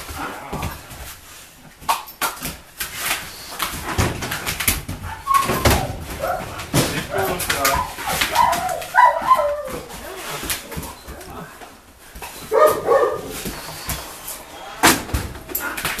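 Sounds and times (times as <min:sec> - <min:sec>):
dog whimpering: 0:05.1 - 0:11.5.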